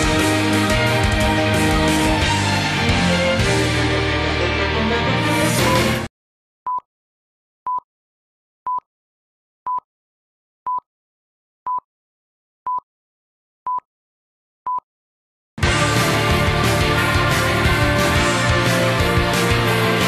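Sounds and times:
burst of music: 0.0 - 6.1, 15.6 - 20.0.

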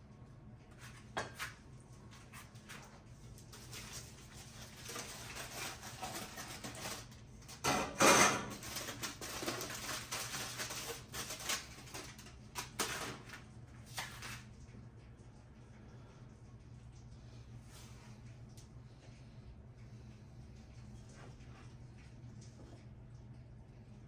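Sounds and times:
aluminium foil crinkling: 2.8 - 7.7, 8.4 - 14.8.

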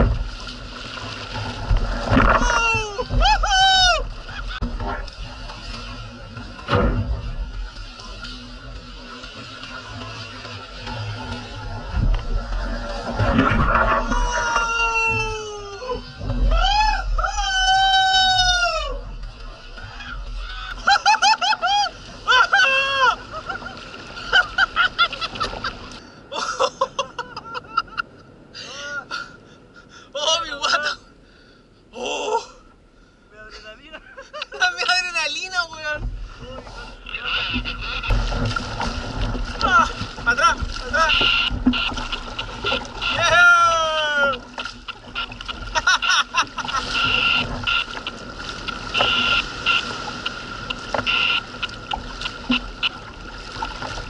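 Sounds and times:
water splashing against kayak: 0.0 - 26.6, 34.3 - 54.0
seabirds yelping calls: 39.6 - 53.1.

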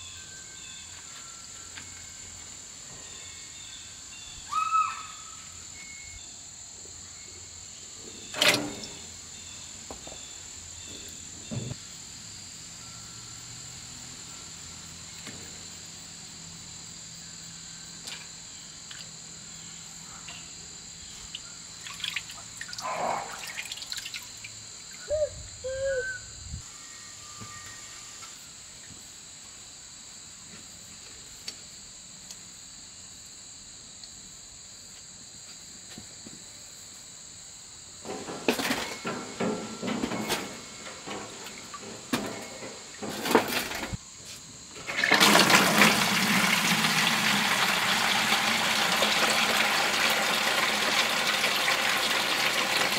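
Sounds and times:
insect chorus trilling: 0.0 - 35.3, 35.9 - 52.9
hands splashing water in sink: 21.8 - 22.4.

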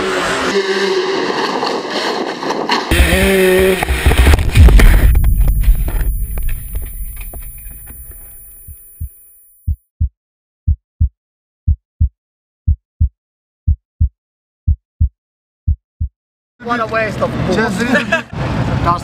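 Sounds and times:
motocross noise: 0.0 - 1.4, 2.9 - 6.7
heartbeat thumps: 2.9 - 16.2.

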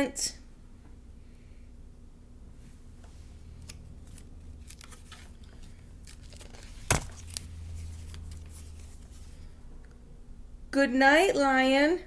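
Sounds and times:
book pages turning: 3.1 - 9.6.

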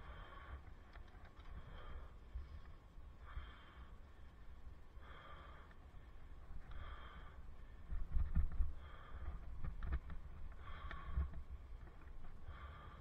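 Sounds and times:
person breathing hard: 0.0 - 0.8, 1.5 - 2.3, 3.2 - 9.9, 10.5 - 11.5, 12.4 - 13.0
wind and road noise rumble: 0.0 - 13.0.

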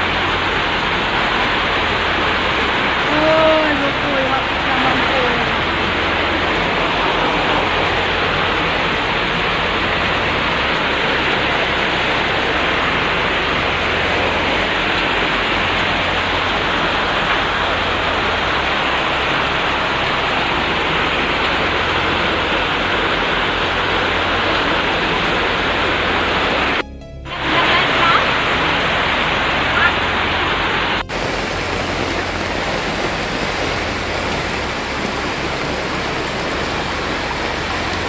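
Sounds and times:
floodwater rushing: 0.0 - 26.8, 27.4 - 38.0
heavy rain pouring: 0.0 - 26.8, 27.4 - 38.0.

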